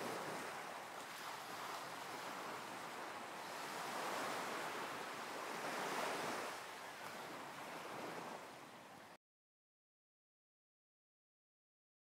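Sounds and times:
ocean waves washing ashore: 0:00.0 - 0:09.2.

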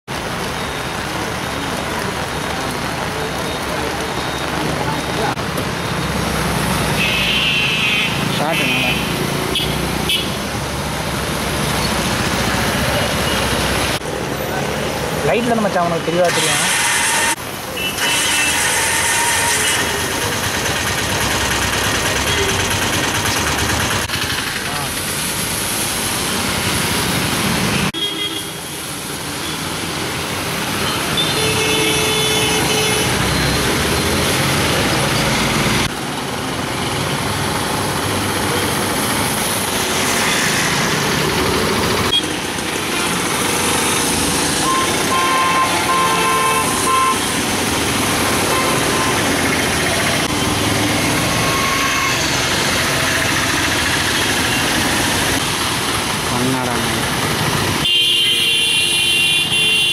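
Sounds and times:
rain and tyres hissing: 0:00.1 - 0:59.9
vehicle horns honking: 0:07.0 - 0:10.4, 0:16.3 - 0:20.0, 0:30.8 - 0:33.5, 0:44.6 - 0:47.3, 0:48.4 - 0:49.3, 0:51.4 - 0:52.4, 0:57.8 - 0:59.9.

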